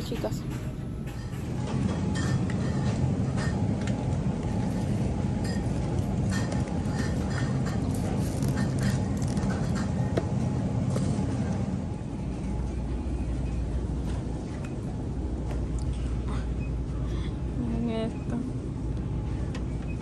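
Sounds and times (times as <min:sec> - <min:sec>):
low rumble of store background: 0:00.0 - 0:20.0.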